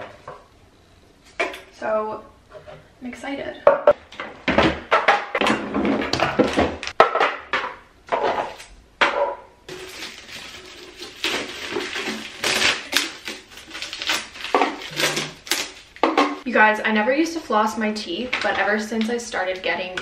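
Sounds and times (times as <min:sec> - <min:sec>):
plastic bins clacking on tile floor: 0:03.8 - 0:16.4.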